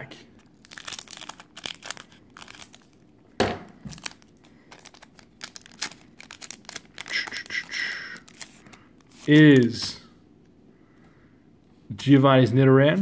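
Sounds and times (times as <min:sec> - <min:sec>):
foil wrapper crinkling: 0:00.4 - 0:03.1, 0:03.8 - 0:09.8.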